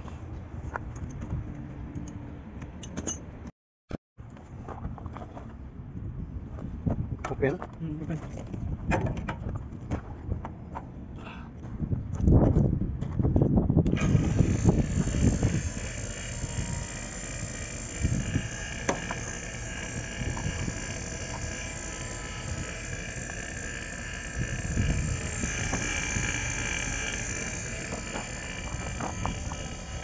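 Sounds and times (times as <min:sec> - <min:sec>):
vacuum pump running: 0:13.9 - 0:30.0.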